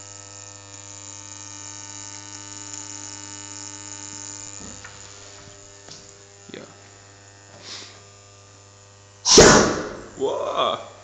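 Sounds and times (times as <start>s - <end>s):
igniter spark buzzing: 0.0s - 11.0s
mains hum: 0.0s - 11.0s
hiss: 7.5s - 8.0s, 9.2s - 10.0s.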